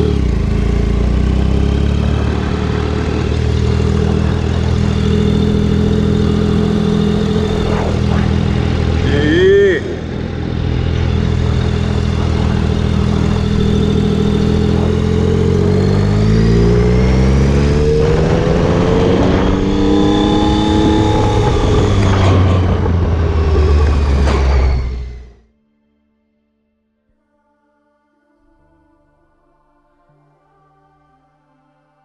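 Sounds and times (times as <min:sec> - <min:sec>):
motorcycle engine accelerating: 0:00.0 - 0:25.4.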